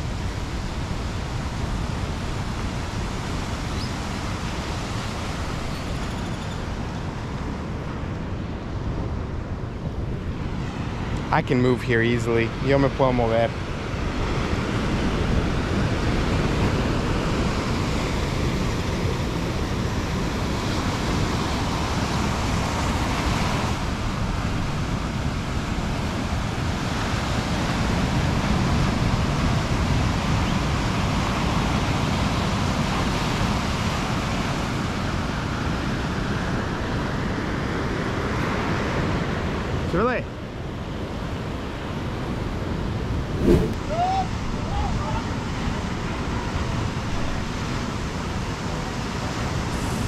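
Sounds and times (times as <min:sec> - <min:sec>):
wind buffeting microphone: 0:43.1 - 0:45.2
wind rushing: 0:43.2 - 0:44.3
sea water rushing: 0:43.3 - 0:44.3.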